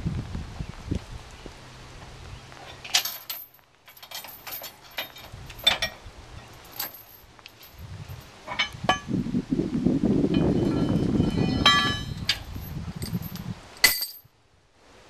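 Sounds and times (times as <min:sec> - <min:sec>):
chains jangling and clinking: 0:02.8 - 0:06.0, 0:06.6 - 0:08.7, 0:10.6 - 0:14.3.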